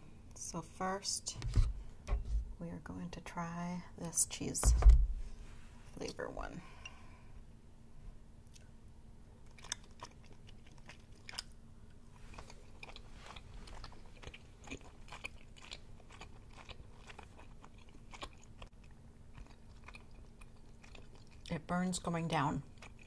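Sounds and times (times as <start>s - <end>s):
person chewing: 9.4s - 11.6s, 12.2s - 21.5s, 22.7s - 23.0s.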